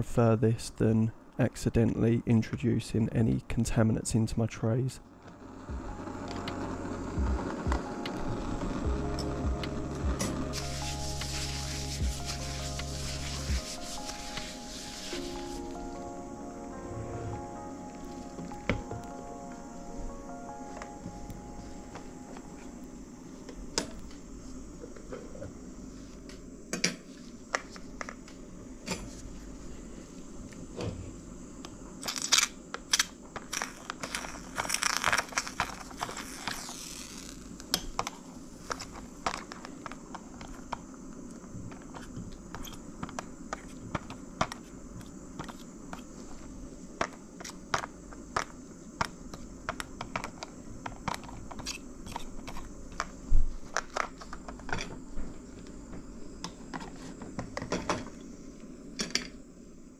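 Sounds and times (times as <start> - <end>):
steady background hiss: 0.0 - 59.9
plastic crinkling: 33.4 - 40.2.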